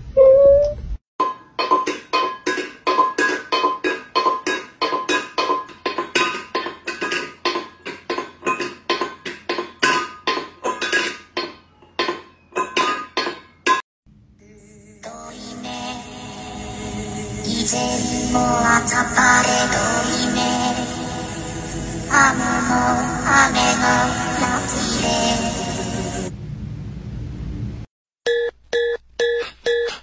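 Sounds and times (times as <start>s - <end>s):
metal bowl clattering on tile floor: 1.2s - 13.8s.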